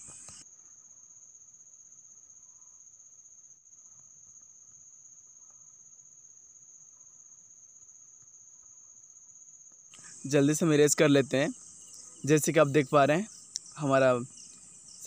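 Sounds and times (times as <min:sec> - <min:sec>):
light hiss: 0:00.0 - 0:00.6, 0:09.9 - 0:15.0
faint high-pitched whine: 0:00.0 - 0:09.1, 0:09.9 - 0:15.0.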